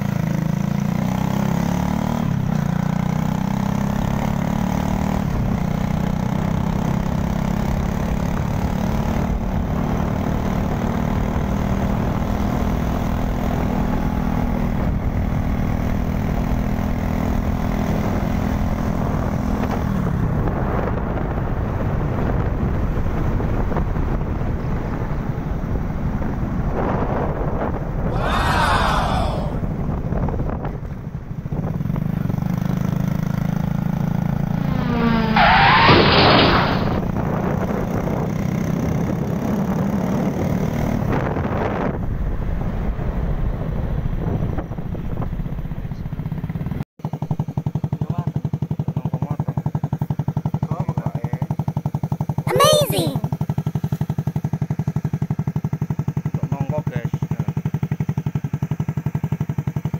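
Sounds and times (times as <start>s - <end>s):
small motorcycle engine running: 0.0s - 26.6s, 46.5s - 59.9s
wind and road noise: 0.0s - 46.2s.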